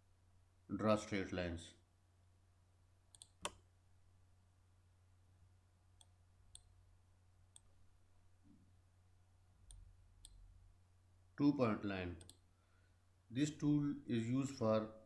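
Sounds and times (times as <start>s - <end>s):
computer mouse clicks: 3.1s - 3.6s, 12.2s - 12.4s.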